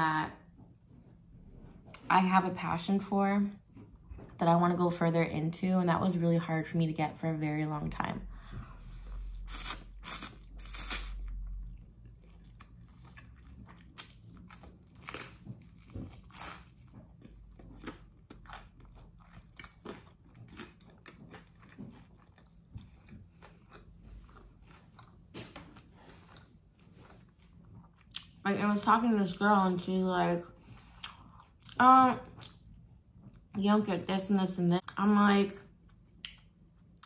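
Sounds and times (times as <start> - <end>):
chewing with wet crunches: 9.0 - 28.4.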